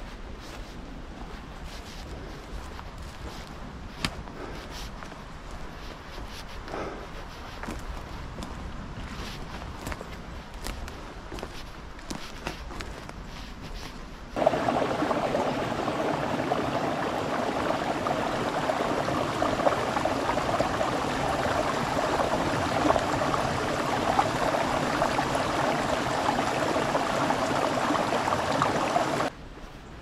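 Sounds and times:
stream babbling: 0:14.4 - 0:29.3.

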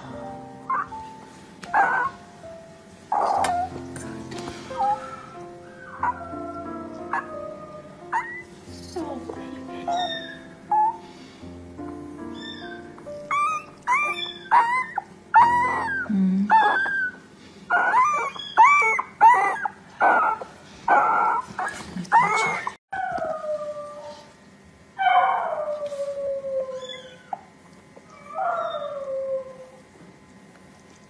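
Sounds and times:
puppy crying: 0:00.7 - 0:01.0, 0:01.7 - 0:02.2, 0:03.1 - 0:03.8, 0:04.6 - 0:09.1, 0:09.8 - 0:11.1, 0:12.3 - 0:24.3, 0:25.0 - 0:29.8.

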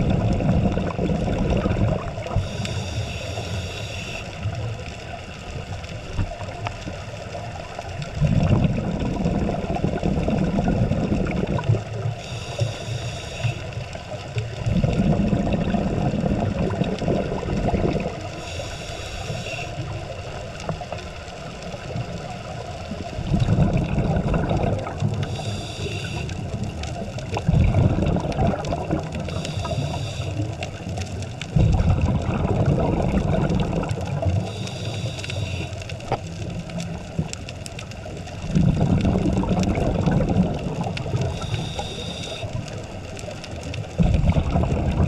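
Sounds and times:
bubbling exhales: 0:00.0 - 0:04.8, 0:08.1 - 0:20.0, 0:21.9 - 0:37.4, 0:38.0 - 0:45.0
regulator hissing inhales: 0:02.4 - 0:04.4, 0:12.2 - 0:13.7, 0:18.4 - 0:19.9, 0:25.2 - 0:26.4, 0:29.3 - 0:30.6, 0:34.4 - 0:35.8, 0:41.3 - 0:42.6.

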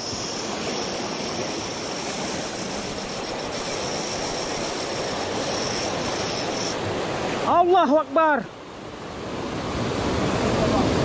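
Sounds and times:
fishing reel drag buzzing: 0:00.0 - 0:06.8
surf washing on rocks: 0:00.0 - 0:11.0.

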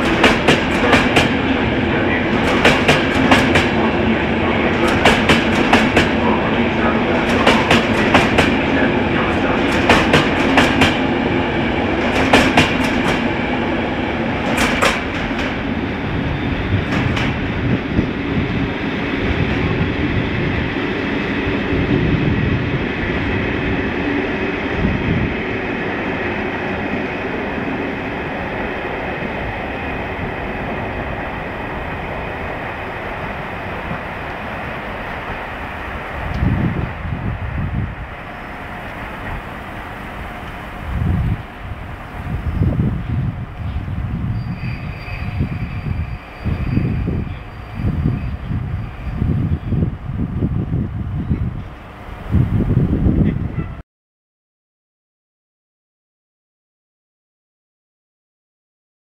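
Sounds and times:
train wheels clicking over track joints: 0:00.0 - 0:01.6, 0:02.3 - 0:03.9, 0:04.7 - 0:06.3, 0:07.1 - 0:11.1, 0:12.0 - 0:13.3, 0:14.4 - 0:15.6, 0:16.8 - 0:17.5
train rolling rumble: 0:00.0 - 0:53.8.

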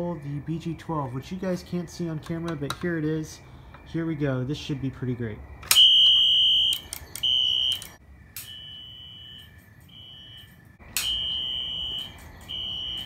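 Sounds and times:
fire alarm horn beeping: 0:05.7 - 0:13.0
sharp click: 0:06.7 - 0:08.6.

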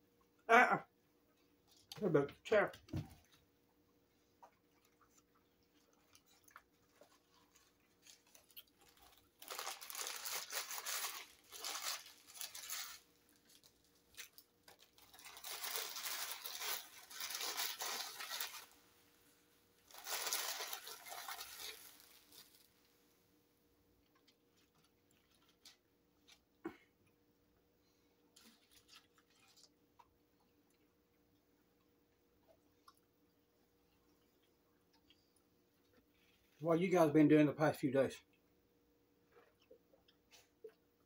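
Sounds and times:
wrapper crinkling and rustling: 0:05.8 - 0:18.8, 0:19.8 - 0:22.8, 0:24.1 - 0:26.5, 0:28.4 - 0:29.7.

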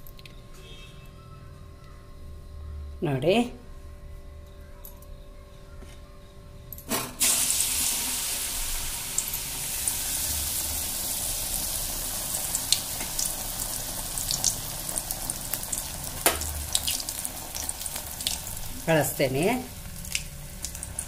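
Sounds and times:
oil sizzling and bubbling: 0:07.2 - 0:21.0.

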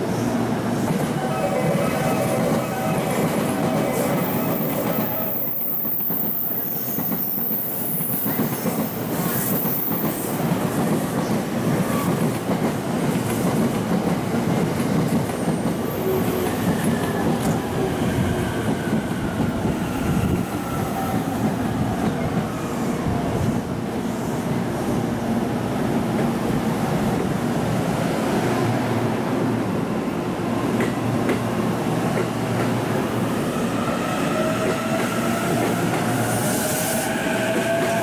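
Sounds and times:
train wheels rumbling on track: 0:02.4 - 0:38.0.

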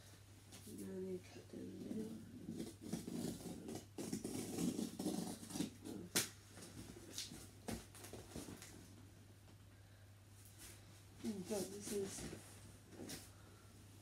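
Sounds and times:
cardboard scratching and rustling: 0:01.8 - 0:08.9.

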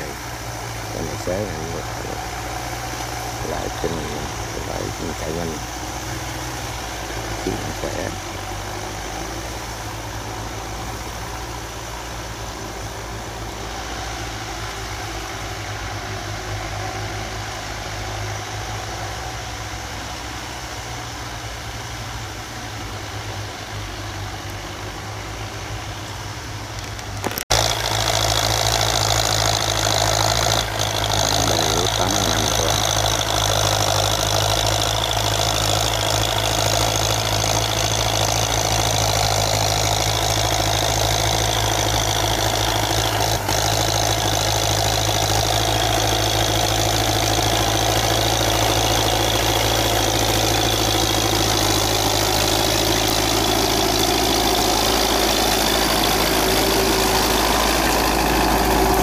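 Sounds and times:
engine hiss: 0:00.0 - 0:59.0
tractor diesel engine under load: 0:00.0 - 0:59.0.

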